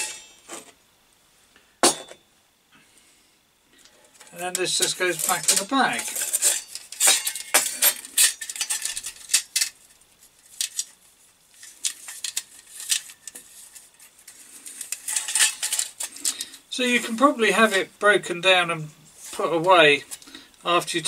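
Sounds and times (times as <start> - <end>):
metal stove parts clinking: 0.0 - 0.5, 1.8 - 2.2, 4.2 - 9.7, 14.9 - 16.4.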